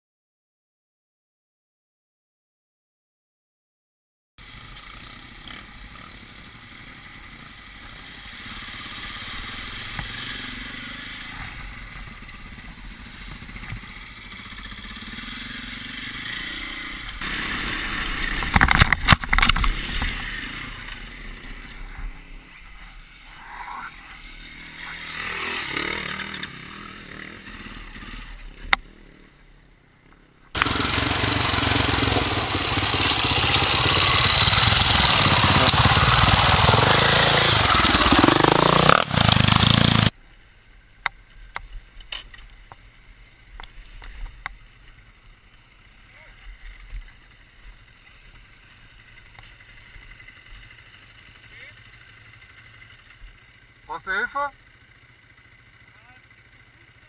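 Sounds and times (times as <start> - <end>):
dirt bike engine running: 4.4 - 40.2, 42.7 - 57.0
loud steady rushing noise: 30.6 - 40.1.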